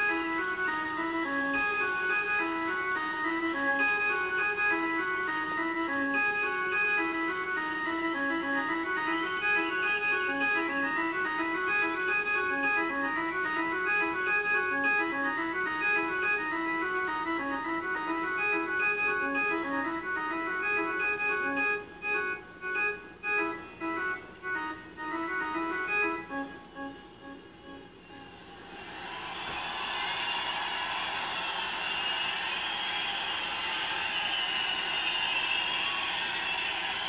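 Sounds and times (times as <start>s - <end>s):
techno synth melody: 0.0s - 28.4s.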